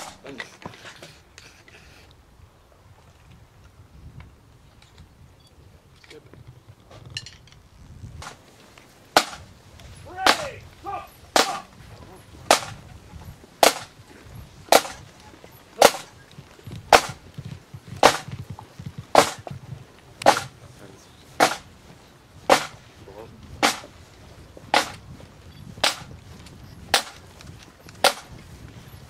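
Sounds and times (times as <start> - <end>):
snare drums beating a march: 0.0 - 0.3, 8.2 - 16.2, 16.9 - 19.6, 20.2 - 20.6, 21.4 - 21.8, 22.4 - 22.9, 23.6 - 24.0, 24.7 - 25.0, 25.8 - 26.1, 26.9 - 27.3, 28.0 - 28.4.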